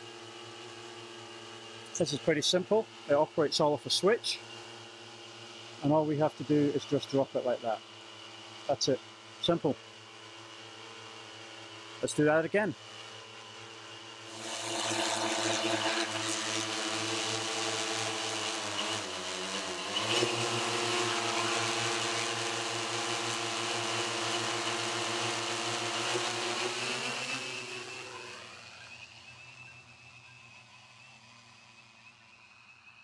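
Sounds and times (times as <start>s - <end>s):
drone propellers whining: 12.8s - 33.0s.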